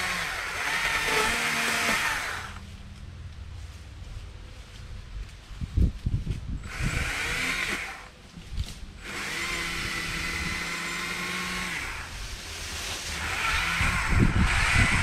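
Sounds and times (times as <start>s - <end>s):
electric chainsaw whining: 0.0s - 2.6s, 6.6s - 8.1s, 9.0s - 15.0s.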